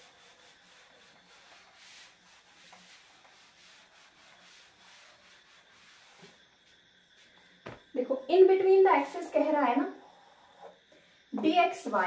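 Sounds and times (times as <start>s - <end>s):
duster rubbing blackboard: 0.0s - 6.4s.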